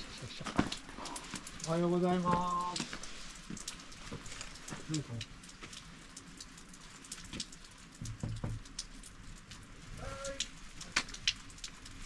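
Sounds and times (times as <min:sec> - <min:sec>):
rain and sleet ticking: 0:00.0 - 0:12.0.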